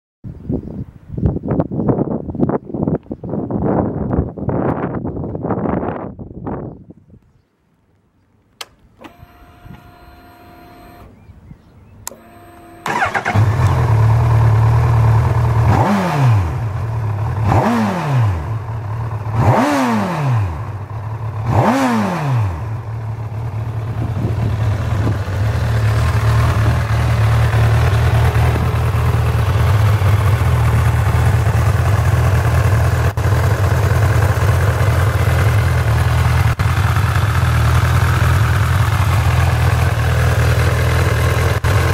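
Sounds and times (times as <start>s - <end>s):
engine throttle blips: 8.6s - 11.3s, 12.0s - 41.9s
faint electric whine: 9.0s - 11.2s, 12.1s - 13.0s
motorcycle engine idling: 12.9s - 15.8s, 16.6s - 17.5s, 20.6s - 21.5s, 22.6s - 41.9s.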